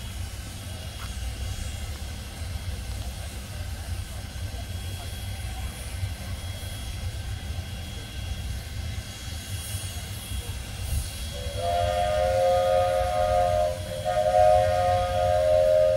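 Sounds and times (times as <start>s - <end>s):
steam locomotive rumble and hiss: 0.0s - 15.9s
steam whistle blast: 11.2s - 15.9s.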